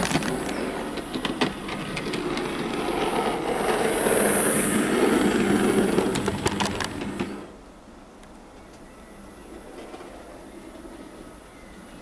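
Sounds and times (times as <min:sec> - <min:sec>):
model train clicks: 0:00.0 - 0:03.8, 0:05.4 - 0:07.5.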